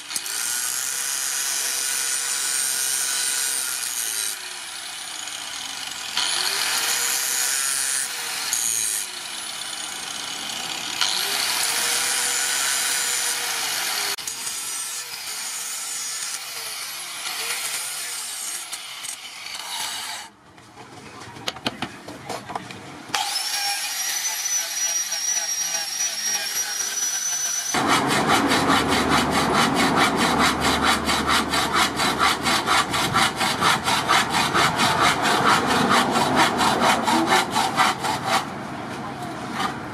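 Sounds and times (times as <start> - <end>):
angle grinder grinding steel: 0.0 - 20.3, 23.2 - 38.5
hacksaw cutting wood: 0.0 - 20.3, 23.1 - 38.6.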